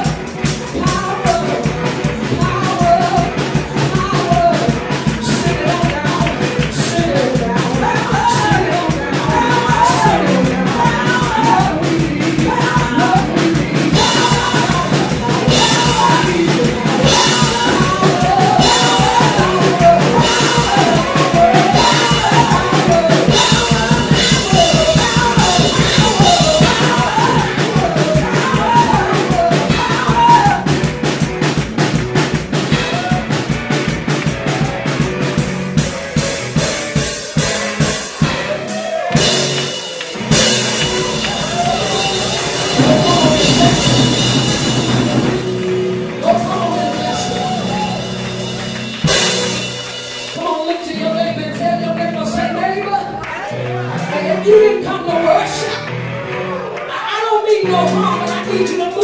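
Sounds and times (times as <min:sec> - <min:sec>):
drum kit beat: 0:00.0 - 0:56.4, 0:57.0 - 0:59.0
woman singing into microphone: 0:00.7 - 0:30.6.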